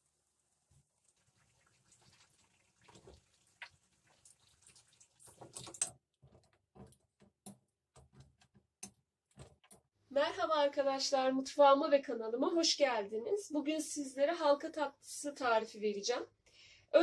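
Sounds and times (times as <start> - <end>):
batter deep-frying in oil: 0.0 - 6.0.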